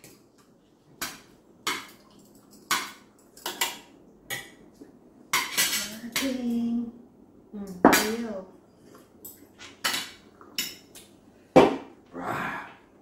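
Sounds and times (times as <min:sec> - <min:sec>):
cutlery clinking against plates: 0:05.3 - 0:06.4, 0:09.2 - 0:11.1.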